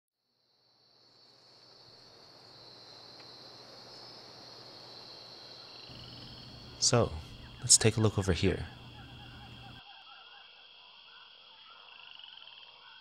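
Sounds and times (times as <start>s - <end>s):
insects chirring: 0.3s - 13.0s
faint low hum: 5.9s - 9.8s.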